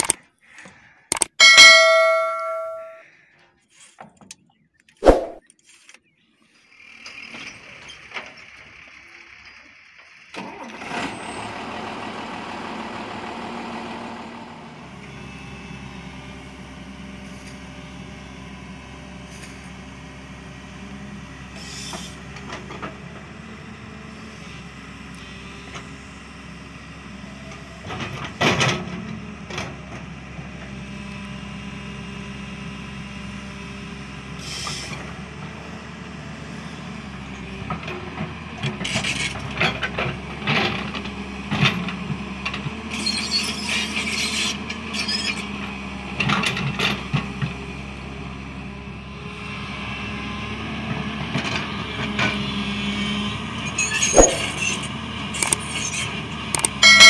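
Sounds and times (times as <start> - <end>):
sharp click: 0.0 - 0.2, 1.1 - 3.0, 54.1 - 54.6, 55.4 - 55.6, 56.6 - 56.8
excavator diesel engine running: 6.7 - 57.0.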